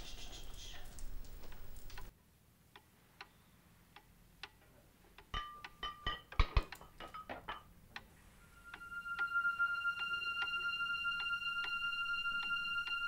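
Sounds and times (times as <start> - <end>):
faint ticks: 0.1 - 2.1
steady held musical tone: 7.7 - 13.0.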